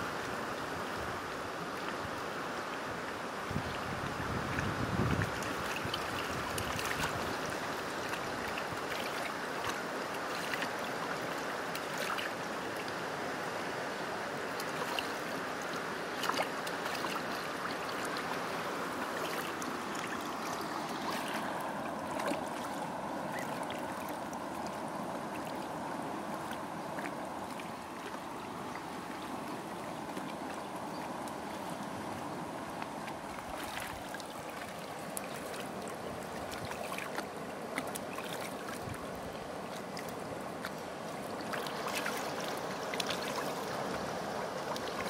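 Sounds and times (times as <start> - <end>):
stream running: 0.0 - 45.0
geese splashing in water: 4.4 - 12.4, 14.5 - 24.7, 39.6 - 45.0.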